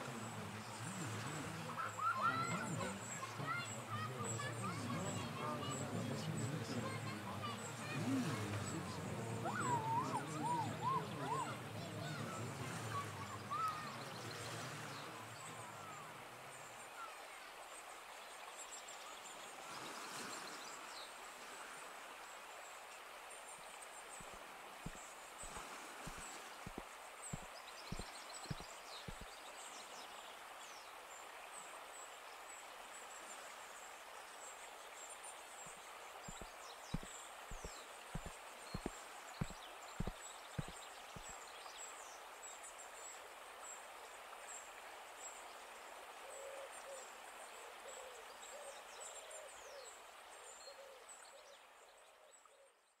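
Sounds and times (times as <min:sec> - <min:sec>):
low repeated bird call: 0:00.0 - 0:18.2, 0:23.3 - 0:30.6, 0:34.4 - 0:42.2
small birds chirping: 0:00.0 - 0:21.2, 0:22.2 - 0:31.3, 0:34.1 - 0:43.8
steady background hiss: 0:00.0 - 0:52.7
soft footsteps: 0:24.2 - 0:29.3, 0:36.3 - 0:41.3.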